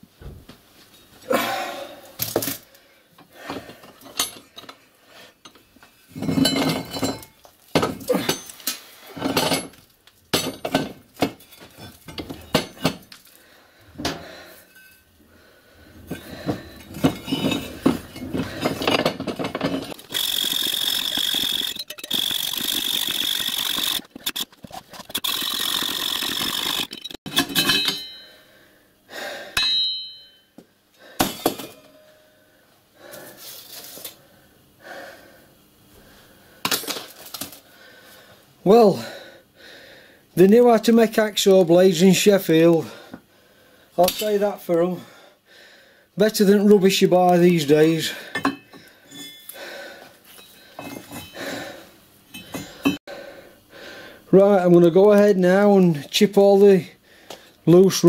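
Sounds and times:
hacksaw cutting steel: 19.9s - 28.2s.

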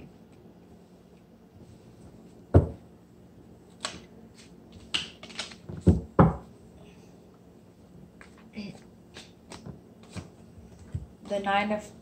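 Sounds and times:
cards clicking: 3.8s - 5.7s.

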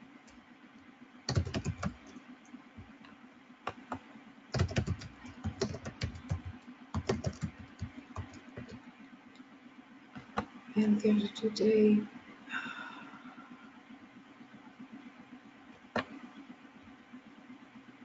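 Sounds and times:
typing on computer keyboard: 1.3s - 2.2s, 4.6s - 8.8s.

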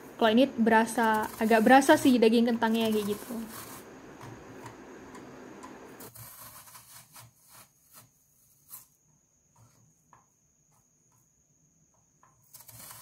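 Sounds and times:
potato scraping on mandoline slicer: 0.6s - 4.7s, 6.0s - 8.9s, 12.4s - 13.0s.

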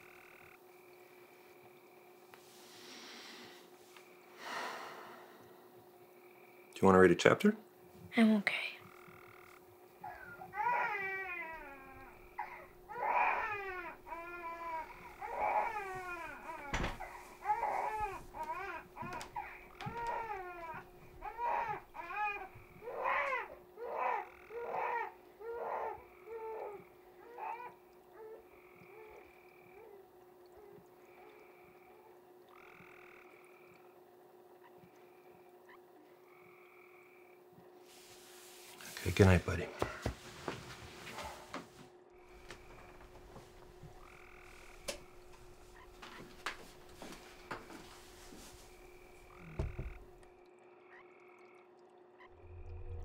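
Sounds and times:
frogs trilling: 0.0s - 2.2s, 4.0s - 7.1s, 8.6s - 37.8s, 42.2s - 53.0s
low hum: 52.2s - 53.0s.

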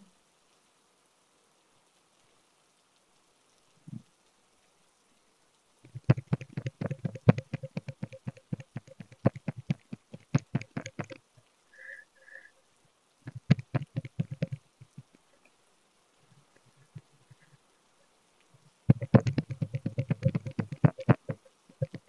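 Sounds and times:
bamboo sticks tapping on skin: 5.9s - 11.2s, 13.3s - 15.0s, 18.9s - 22.0s.

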